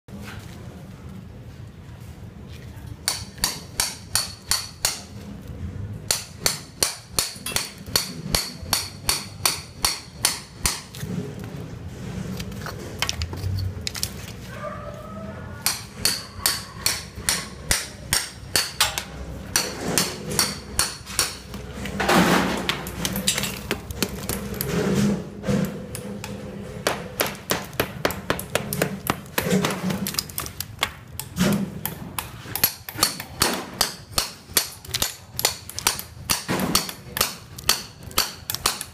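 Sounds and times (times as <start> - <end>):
hammer striking chisel on brick: 3.0 - 5.1, 6.1 - 10.9, 15.6 - 21.6, 25.6 - 38.9.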